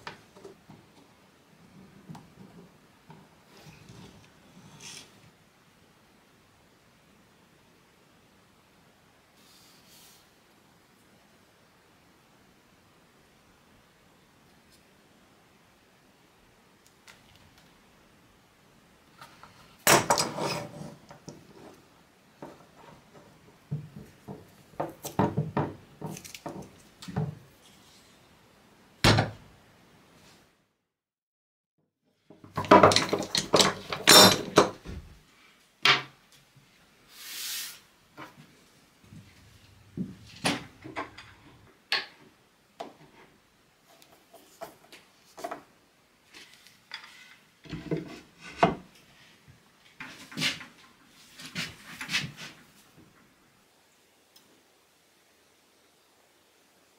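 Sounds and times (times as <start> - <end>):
wood knocking on wood: 23.2 - 27.4
clamps and wooden blocks knocking: 32.4 - 34.8.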